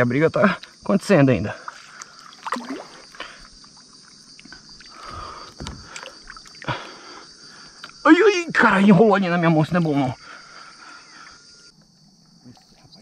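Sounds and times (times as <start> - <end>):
water sloshing and splashing: 1.6 - 7.2.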